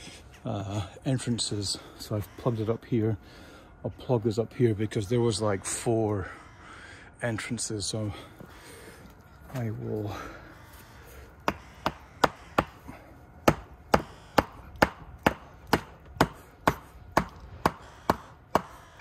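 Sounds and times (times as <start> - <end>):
hammer knocking wooden plug: 11.4 - 12.8, 13.4 - 19.0.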